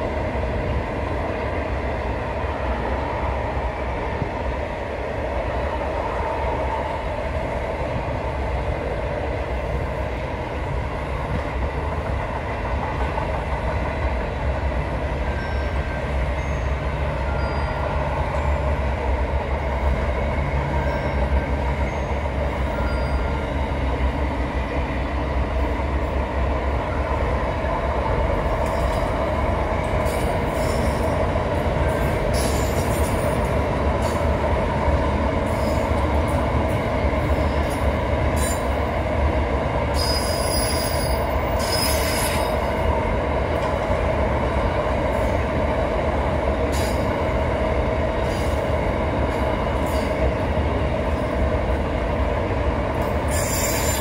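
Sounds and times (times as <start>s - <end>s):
freight train wagons rumbling: 0.0s - 54.0s
wheel squeals: 40.0s - 42.4s, 53.3s - 54.0s.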